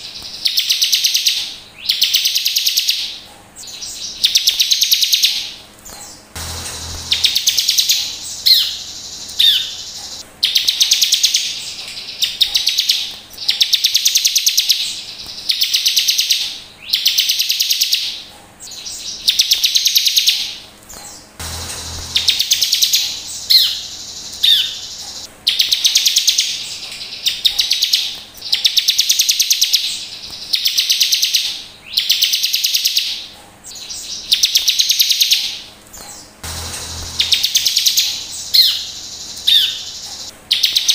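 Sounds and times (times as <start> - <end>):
buzzy trilled birdsong: 0.0 - 40.9
quick rising bird notes: 6.4 - 9.7, 21.4 - 24.7, 36.4 - 38.8.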